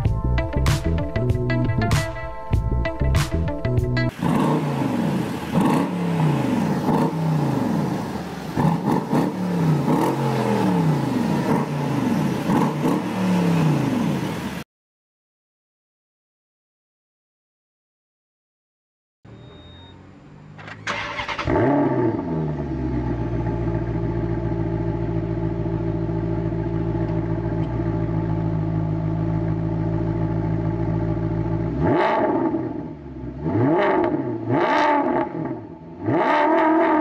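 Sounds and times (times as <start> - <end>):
car engine starting and idling: 2.6 - 14.6, 19.9 - 37.0
engine revving in throttle blips: 4.0 - 14.6, 19.3 - 37.0.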